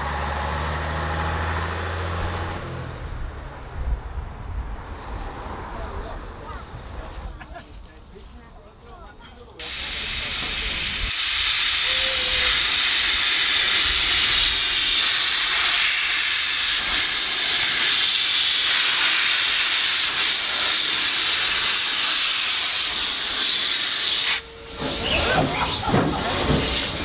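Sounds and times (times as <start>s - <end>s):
steam locomotive hissing: 9.6s - 27.0s.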